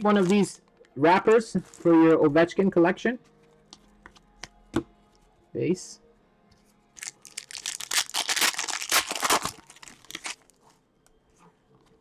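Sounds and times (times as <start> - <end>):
foil wrapper tearing and crinkling: 7.0 - 10.6.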